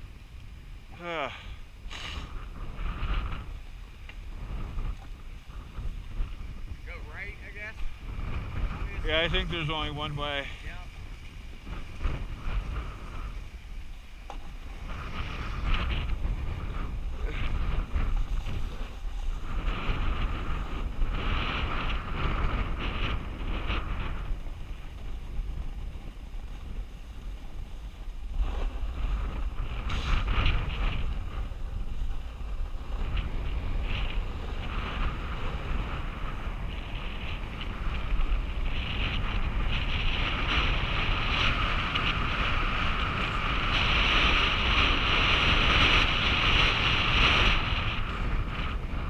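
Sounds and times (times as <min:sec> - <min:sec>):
wind rushing over microphone: 0:00.0 - 0:49.0
skis scraping on snow: 0:01.3 - 0:49.0.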